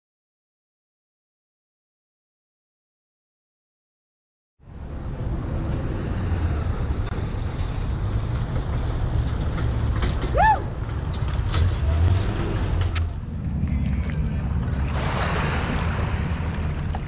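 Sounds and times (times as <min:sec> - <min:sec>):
pickup truck driving past: 0:05.0 - 0:17.0.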